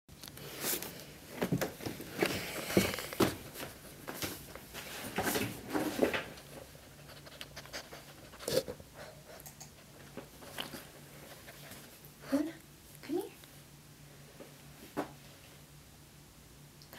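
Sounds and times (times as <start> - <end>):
dog breathing and sniffing: 6.8 - 12.0.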